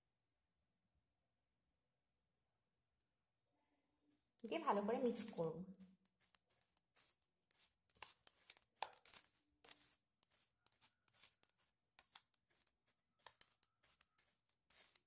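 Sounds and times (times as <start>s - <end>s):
spoon scraping through powder: 4.4s - 15.0s.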